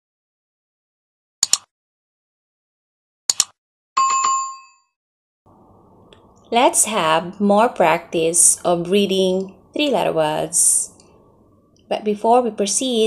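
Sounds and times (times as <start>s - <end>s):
bright bell ding: 4.0s - 4.9s.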